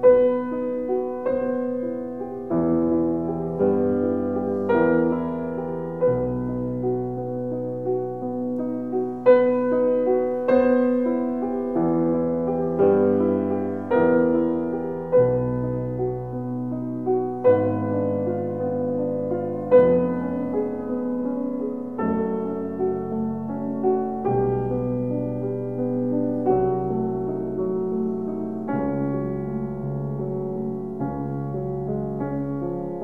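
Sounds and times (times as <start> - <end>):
slow gentle piano music: 0.0 - 33.0.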